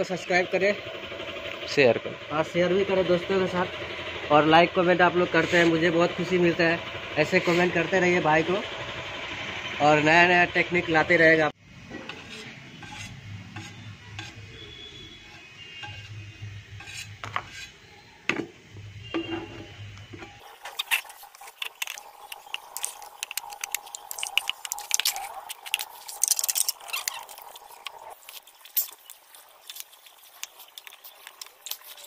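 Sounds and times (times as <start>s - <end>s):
clinks and scrapes: 11.9s - 14.4s, 15.3s - 17.8s, 20.2s - 32.0s
liquid pouring from plastic bottle: 20.4s - 32.0s.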